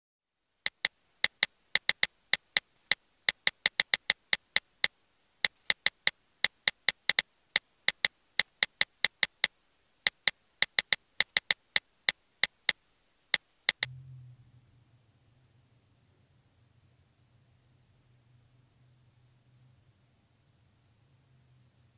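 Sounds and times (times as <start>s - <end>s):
keyboard typing clicks: 0.7s - 7.2s, 7.9s - 9.5s, 10.1s - 11.8s, 12.4s - 13.9s
low hum: 13.8s - 21.2s.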